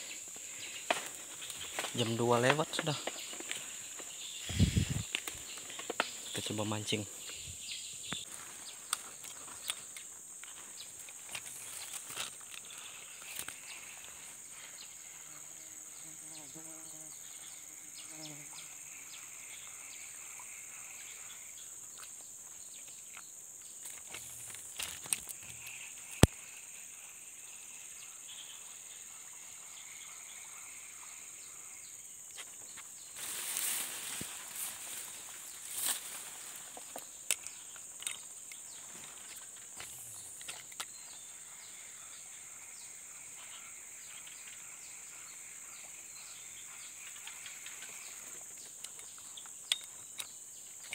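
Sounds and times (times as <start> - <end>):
high-pitched insect drone: 0.0 - 8.3, 9.1 - 50.9
rustling: 33.2 - 37.0.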